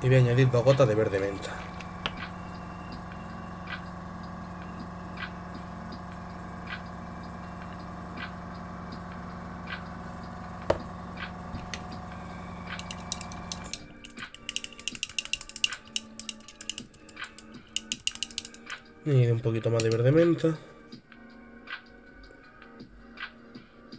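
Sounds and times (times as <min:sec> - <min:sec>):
compressor humming: 0:00.0 - 0:20.9
rapid rattling clicks: 0:12.7 - 0:18.8, 0:19.8 - 0:20.1.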